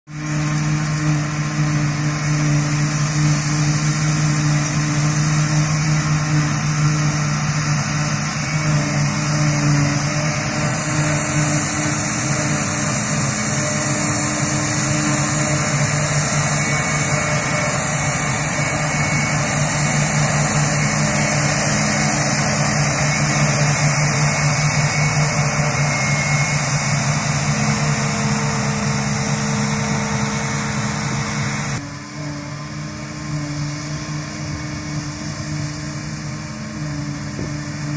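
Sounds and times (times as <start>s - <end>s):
forage harvester engine drone: 0.1s - 37.9s
hissing rush of chopping: 2.1s - 31.8s.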